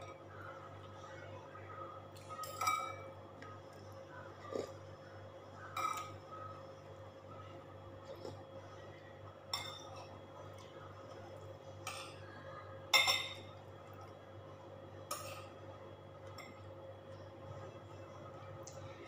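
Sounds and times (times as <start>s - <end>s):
steady low hum: 0.0s - 19.0s
cutlery clinking on ceramic dishes: 2.4s - 3.1s, 5.8s - 6.2s, 9.5s - 10.1s, 12.9s - 13.6s.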